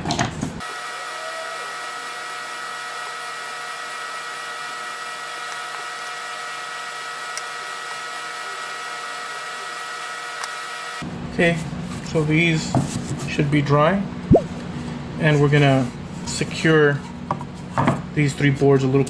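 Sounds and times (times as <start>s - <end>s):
hair dryer running: 0.6s - 11.0s.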